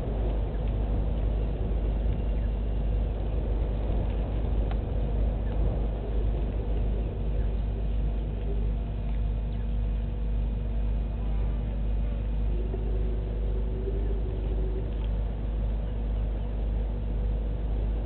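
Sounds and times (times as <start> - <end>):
low rumble with hum: 0.0 - 18.0.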